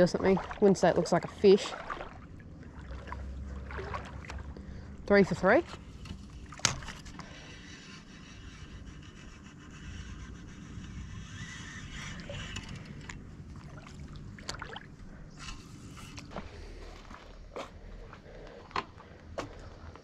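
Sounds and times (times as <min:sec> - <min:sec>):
water noise: 0:00.0 - 0:17.4
wind: 0:00.0 - 0:20.0
fishing reel clicks: 0:10.8 - 0:13.2.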